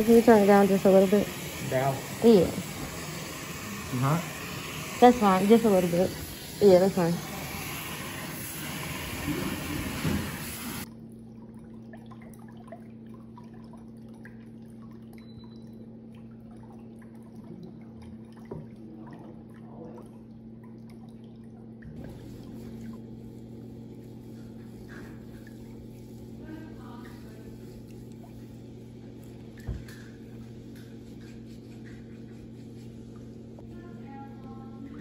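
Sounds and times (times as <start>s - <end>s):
water running into tub: 0.0s - 35.0s
small water drips: 10.8s - 31.0s
low steady hum: 10.8s - 35.0s.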